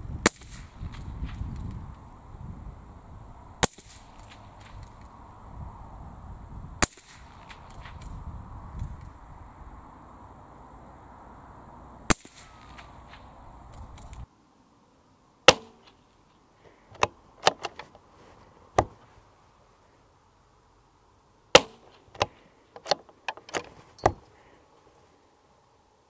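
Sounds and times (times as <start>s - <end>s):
rifle shots: 0.2s - 1.4s, 3.6s - 4.8s, 6.8s - 8.0s, 12.1s - 13.2s, 21.6s - 21.8s
rifle bolt metallic clicks: 17.0s - 18.0s, 21.6s - 24.3s.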